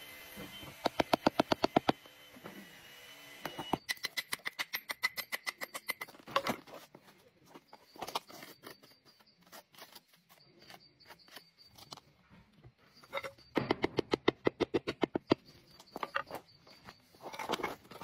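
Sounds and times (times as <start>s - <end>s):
hammer tapping on stone: 0.8s - 2.0s
stones clicking and scraping: 13.0s - 18.0s.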